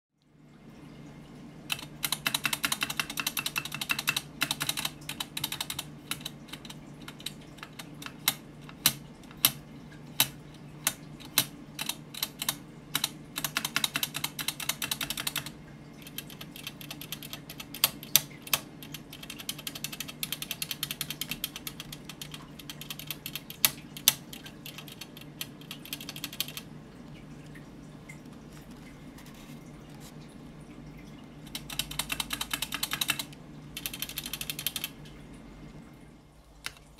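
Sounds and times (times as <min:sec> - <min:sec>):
keyboard keys clacking: 0:01.7 - 0:09.6, 0:31.5 - 0:34.9.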